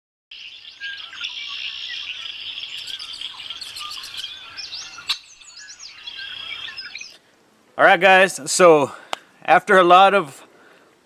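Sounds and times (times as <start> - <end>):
birds chirping: 0.3 - 7.3.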